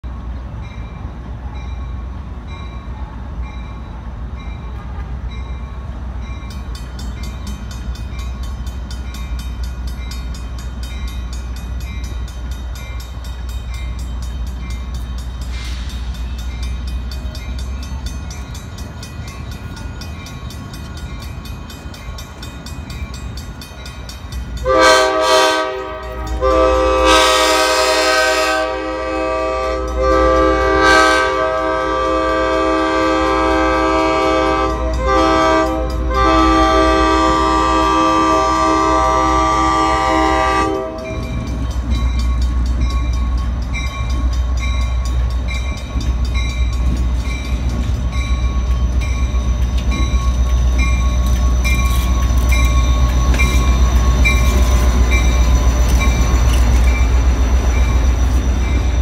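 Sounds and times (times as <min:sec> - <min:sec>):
train rumble: 0:00.0 - 0:59.0
locomotive air horn: 0:24.6 - 0:41.2
bell ringing rapidly: 0:41.0 - 0:59.0.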